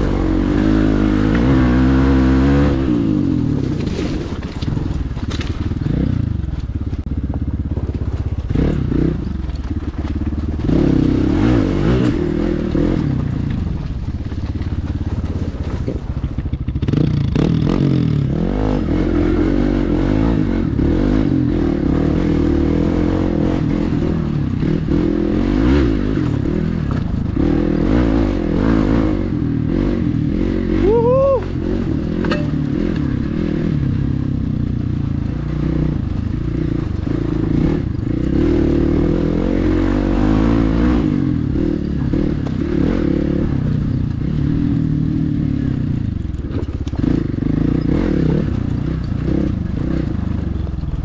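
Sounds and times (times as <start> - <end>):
dirt bike engine revving: 0.0 - 51.0
stones crunching under tyres: 3.3 - 18.0.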